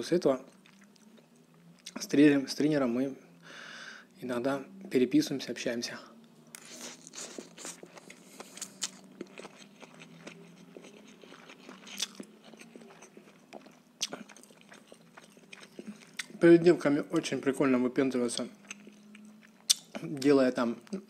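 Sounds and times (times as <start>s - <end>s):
wet chewing mouth sounds: 0.5s - 2.0s, 6.5s - 16.4s, 18.4s - 20.2s
sharp chewing clicks: 6.5s - 16.4s, 18.4s - 21.0s.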